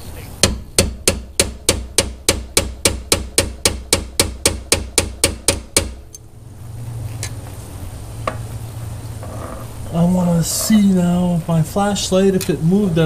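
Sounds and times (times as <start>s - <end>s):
hammer striking metal punch: 0.4s - 6.0s.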